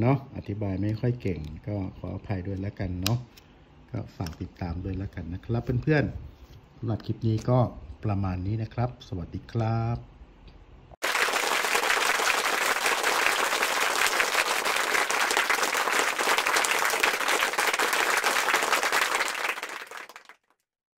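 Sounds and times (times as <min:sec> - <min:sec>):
many hands clapping: 0:11.0 - 0:20.6.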